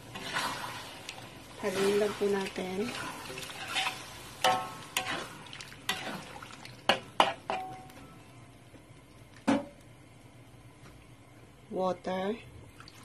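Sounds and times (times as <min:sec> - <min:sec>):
spatula scraping wok: 0:00.0 - 0:07.6.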